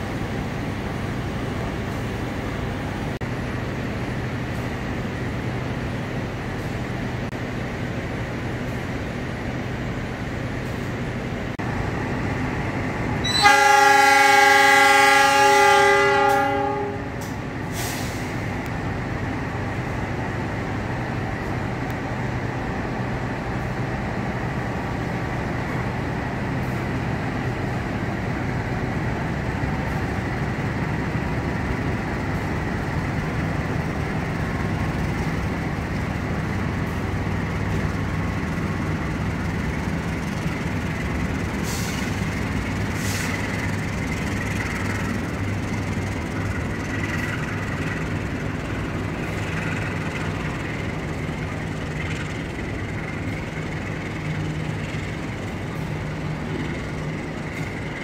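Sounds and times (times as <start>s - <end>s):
low engine rumble: 0.0s - 58.0s
locomotive horn blast: 13.2s - 17.3s.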